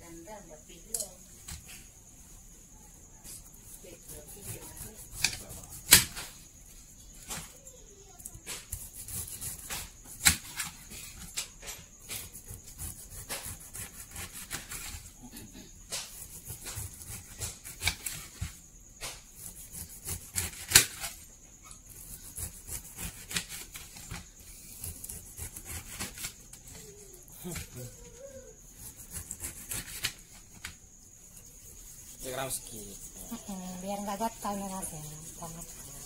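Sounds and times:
knife cutting pineapple rind: 3.4 - 6.4, 8.2 - 15.1, 15.9 - 28.0, 28.6 - 30.8.

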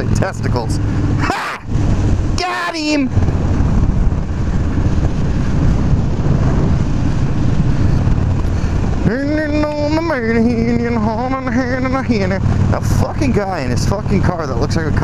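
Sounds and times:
motorcycle engine running: 0.0 - 15.0
wind noise on microphone: 0.0 - 15.0
wavering voice: 1.2 - 1.7.

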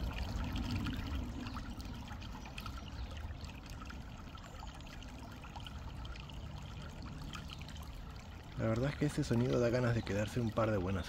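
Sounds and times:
river water trickling: 0.0 - 11.0.

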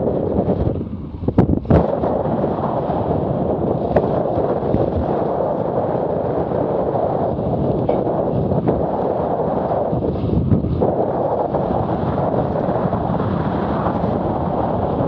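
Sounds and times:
water rushing along hull: 0.0 - 15.0
wind buffeting microphone: 0.0 - 15.0.

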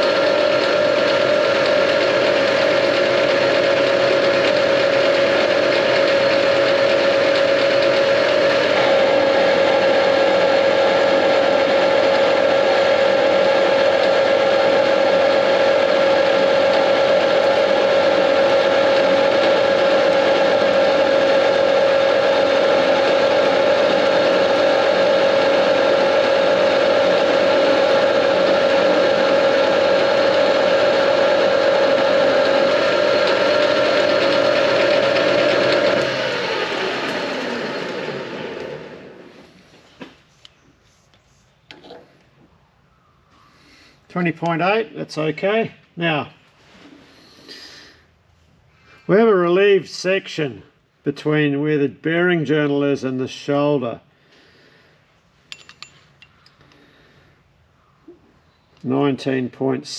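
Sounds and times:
metal lathe whine: 0.0 - 39.4.

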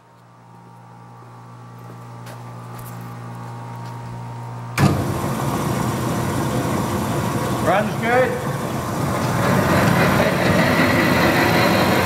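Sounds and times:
bandsaw motor running: 4.8 - 12.0.

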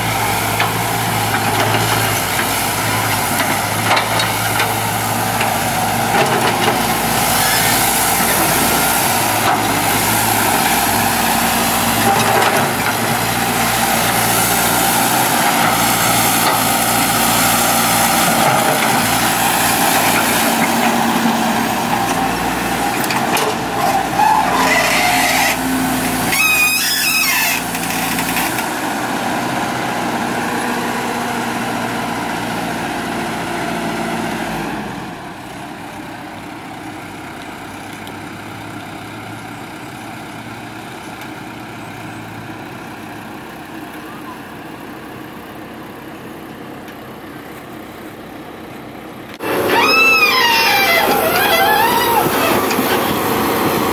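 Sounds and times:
excavator diesel engine running: 0.0 - 53.9
high wavering squeal: 26.2 - 27.6, 49.4 - 53.4.

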